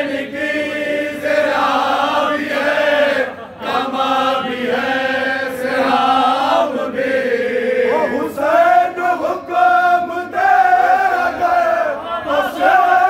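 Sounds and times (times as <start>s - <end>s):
men chanting a lament: 0.0s - 13.0s.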